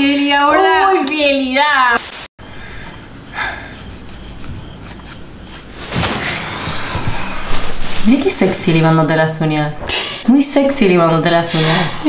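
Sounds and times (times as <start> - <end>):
nail file rasping on fingernails: 2.8 - 5.2
bedding rustling: 4.1 - 11.2.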